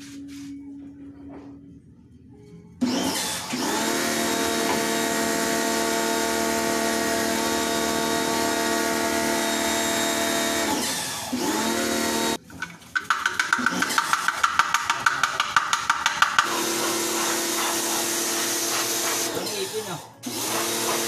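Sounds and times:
electric motor humming: 2.8 - 12.4.

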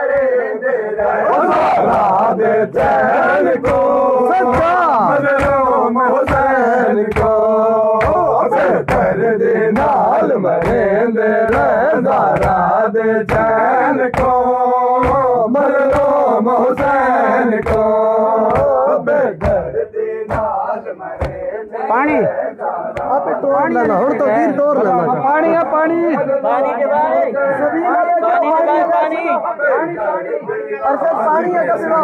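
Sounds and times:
men chanting a lament: 0.0 - 32.0
hands striking chests: 15.0 - 20.6, 21.2 - 21.5.

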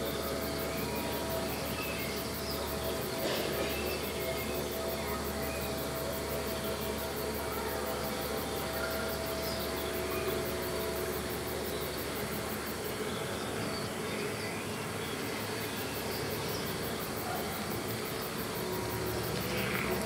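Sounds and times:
didgeridoo drone: 16.4 - 20.0.

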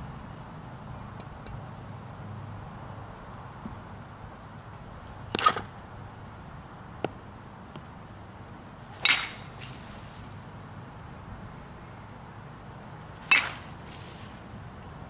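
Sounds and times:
metal bat hitting ball: 5.3 - 5.8, 9.0 - 9.5, 13.2 - 13.7.

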